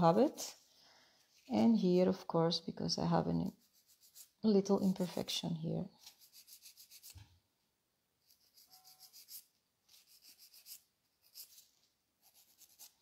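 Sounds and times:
nail file rasping: 3.5s - 4.4s, 6.0s - 7.2s, 8.3s - 13.0s.

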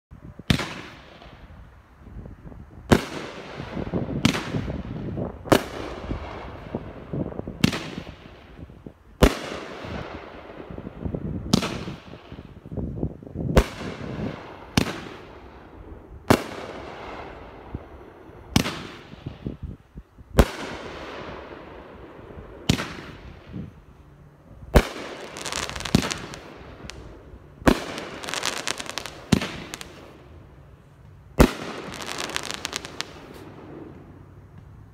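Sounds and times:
firework crackling: 24.7s - 34.4s.

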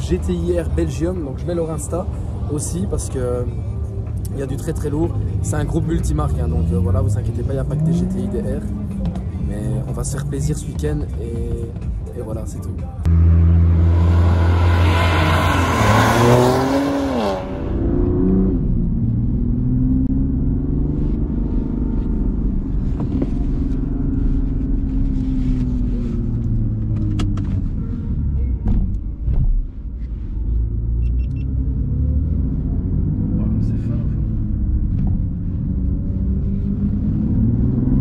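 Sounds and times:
car engine passing fast: 13.1s - 20.2s
car engine heard from inside cabin: 16.2s - 38.0s.

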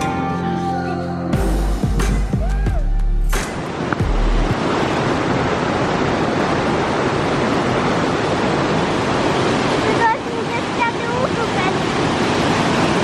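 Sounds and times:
river rushing over rocks: 3.3s - 13.0s.

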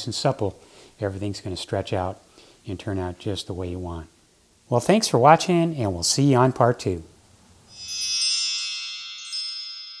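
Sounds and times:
bright chime ringing: 7.7s - 10.0s.

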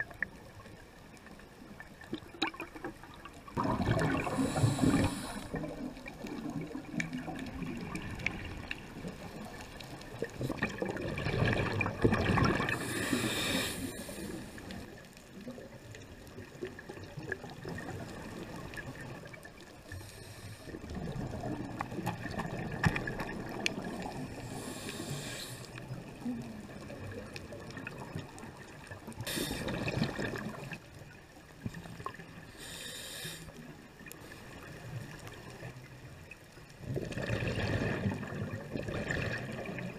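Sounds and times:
bubbles gurgling underwater: 0.0s - 19.8s, 20.7s - 32.4s, 34.5s - 39.9s
regulator breath hiss: 4.2s - 5.6s, 12.7s - 14.8s, 19.9s - 20.8s, 24.4s - 25.8s, 29.2s - 29.8s, 32.5s - 33.6s.

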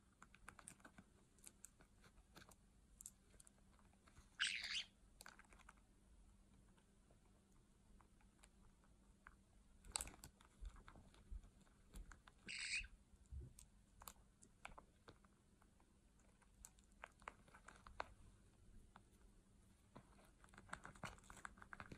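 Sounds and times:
parrot harsh call: 4.4s - 4.9s, 12.5s - 12.9s.

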